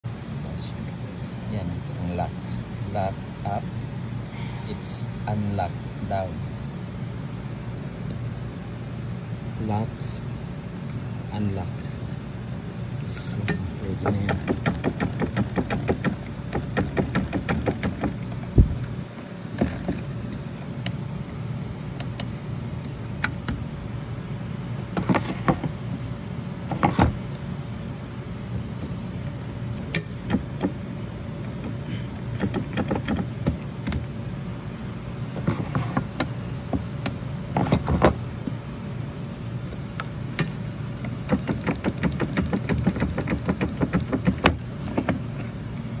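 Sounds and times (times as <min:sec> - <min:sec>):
low mechanical hum: 0:00.0 - 0:46.0
sharp knocks: 0:13.5 - 0:18.8.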